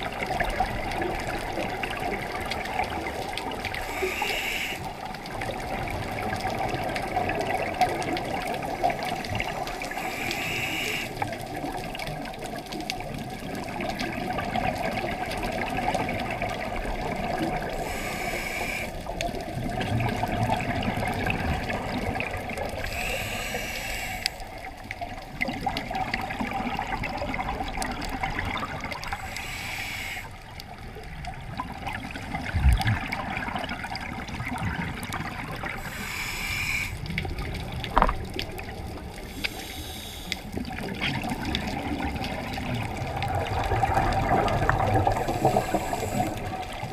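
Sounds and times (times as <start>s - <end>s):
bubbles rushing and gurgling: 0.0s - 46.9s
breathing through scuba regulator: 3.8s - 5.1s, 8.7s - 11.4s, 17.6s - 19.1s, 22.8s - 24.6s, 28.9s - 30.5s, 35.7s - 37.3s, 39.2s - 40.7s, 45.0s - 46.9s.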